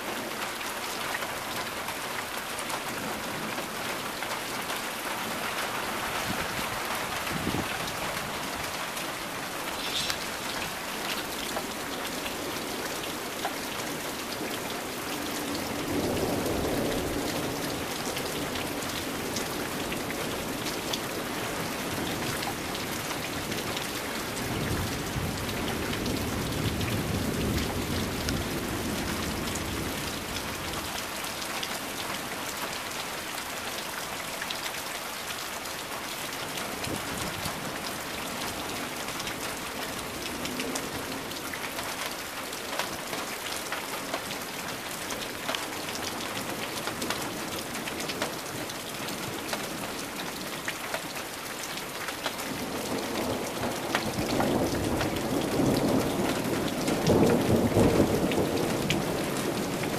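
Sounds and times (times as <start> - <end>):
heavy rain falling: 0.0 - 59.9
low rumble of thunder: 24.4 - 30.8, 52.6 - 59.9.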